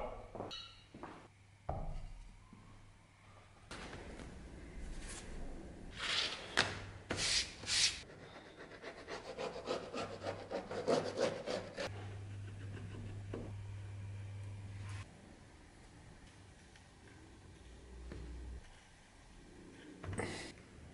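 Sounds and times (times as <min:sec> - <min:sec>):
low steady hum: 0:11.9 - 0:20.9.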